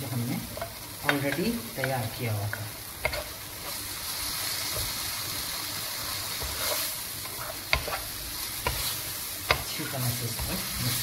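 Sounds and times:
food sizzling in hot oil: 0:00.0 - 0:11.0
wooden spoon scraping: 0:06.3 - 0:11.0.

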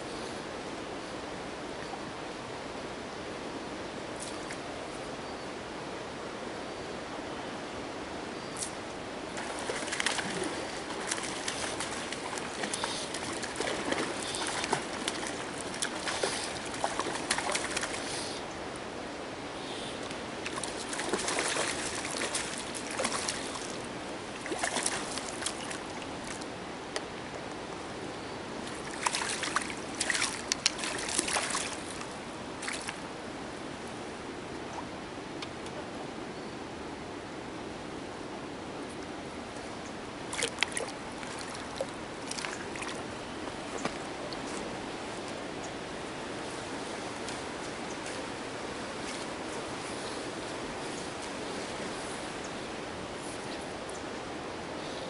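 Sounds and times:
steady background hiss: 0:00.0 - 0:55.0.

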